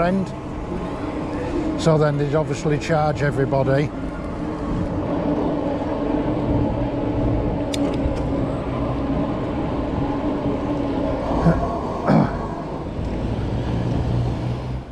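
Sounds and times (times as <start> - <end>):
e-bike riding hum: 0.0 - 14.9
wind on microphone: 2.9 - 14.7.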